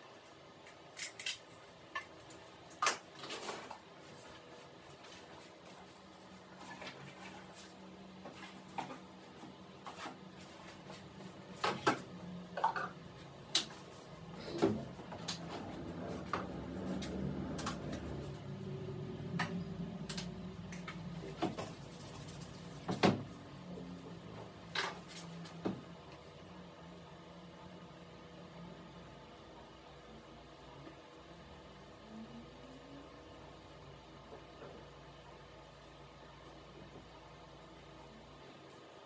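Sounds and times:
low hum: 0:12.0 - 0:22.8.

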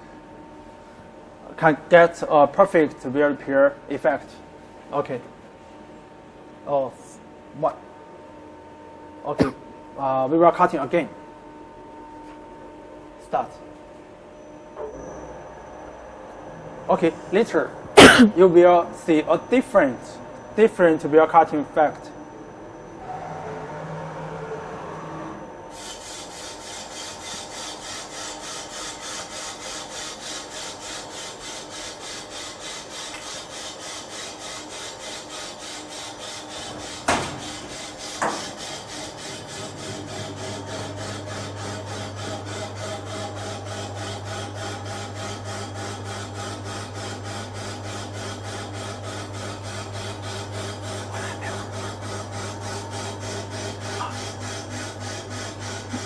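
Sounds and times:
lathe cutting tool scraping hiss: 0:24.9 - 0:56.0.

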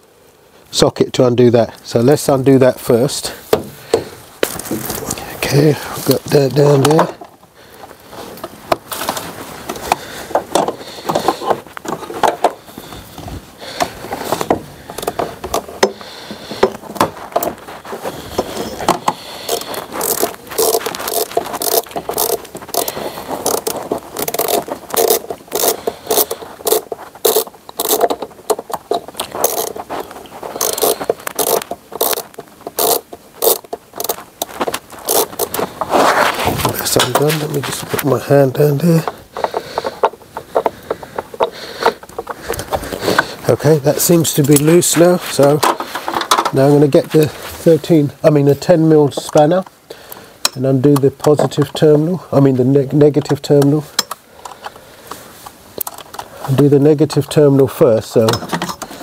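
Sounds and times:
socket ratchet clicking: 0:19.5 - 0:29.8, 0:30.6 - 0:34.2, 0:35.0 - 0:35.5.

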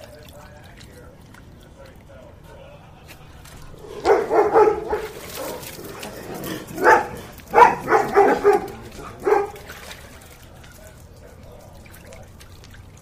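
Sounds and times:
dog barking: 0:03.8 - 0:09.8.

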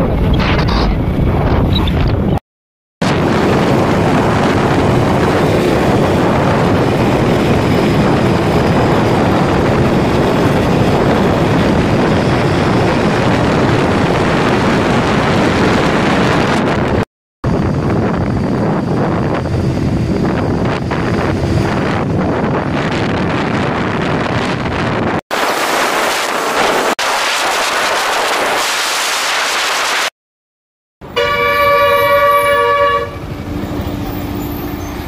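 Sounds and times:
wind on microphone: 0:00.0 - 0:02.4, 0:03.0 - 0:30.1
loud vehicle horn: 0:31.0 - 0:33.2.

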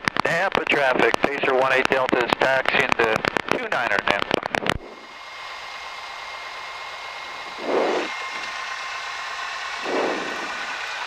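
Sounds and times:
airplane engine and propeller: 0:00.0 - 0:11.0.

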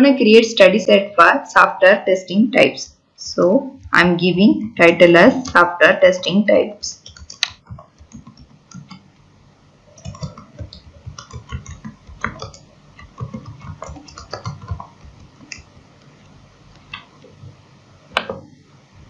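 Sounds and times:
typing on computer keyboard: 0:07.0 - 0:09.0, 0:10.0 - 0:15.7.

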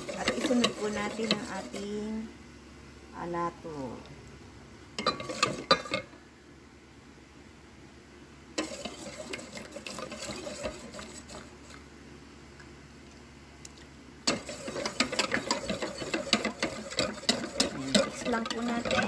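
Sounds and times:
fast clicking mixing: 0:00.0 - 0:01.9, 0:08.6 - 0:11.8, 0:14.2 - 0:19.0
utensil stirring batter in bowl: 0:00.0 - 0:02.3, 0:05.0 - 0:06.1, 0:08.6 - 0:11.9, 0:14.2 - 0:19.0
utensil clinking against bowl: 0:14.3 - 0:19.0.

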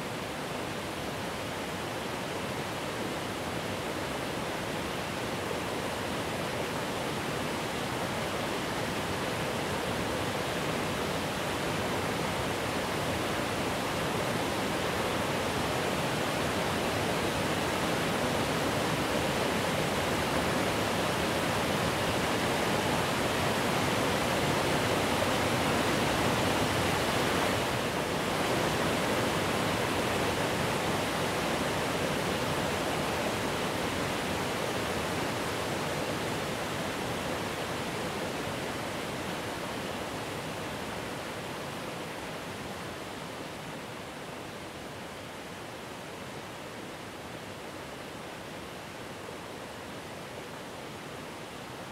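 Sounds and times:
waterfall rushing: 0:00.0 - 0:51.9.

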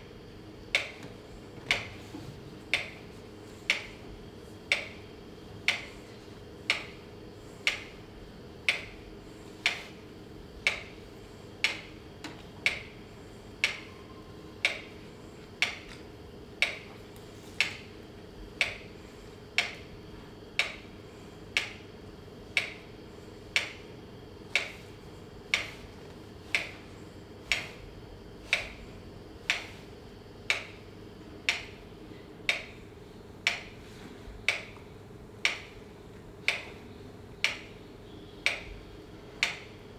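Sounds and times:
constant low hum: 0:00.0 - 0:39.9
steady sharp ticking: 0:02.7 - 0:04.0, 0:04.6 - 0:06.0, 0:06.6 - 0:14.0, 0:14.6 - 0:15.9, 0:16.5 - 0:16.9, 0:17.6 - 0:33.8, 0:34.4 - 0:37.8, 0:38.4 - 0:39.9.

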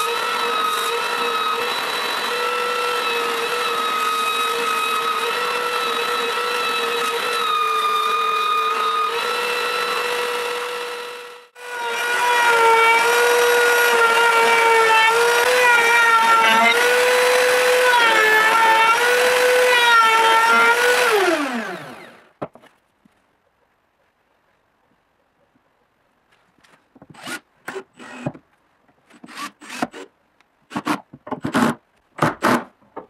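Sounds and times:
router table humming: 0:00.0 - 0:22.4
belt sander running: 0:08.8 - 0:22.3.

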